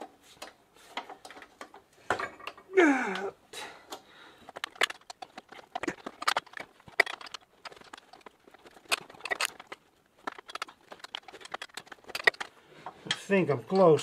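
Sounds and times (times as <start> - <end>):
hand tool clicking on metal: 3.9 - 12.5.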